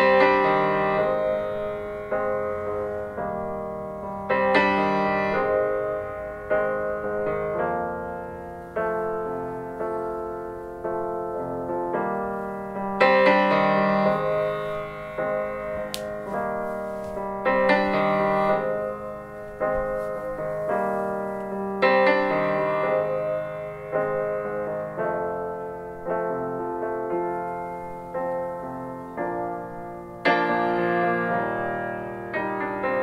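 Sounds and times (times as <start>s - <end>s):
solo piano music through speaker: 0.0s - 33.0s.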